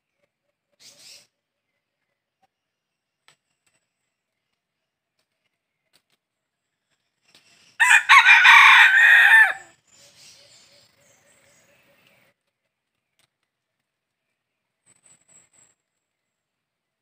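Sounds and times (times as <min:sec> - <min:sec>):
rooster crowing: 0:07.8 - 0:09.7.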